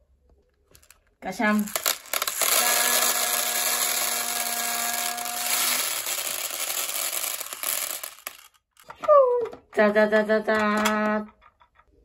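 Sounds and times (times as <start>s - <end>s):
beads pouring into plastic tub: 0.8s - 8.6s.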